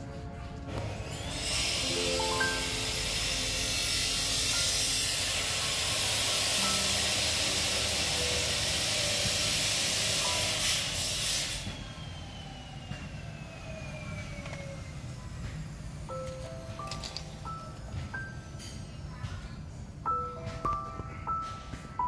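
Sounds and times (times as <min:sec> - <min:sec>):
background music: 0:00.0 - 0:10.7
loud steady hiss: 0:01.1 - 0:11.8.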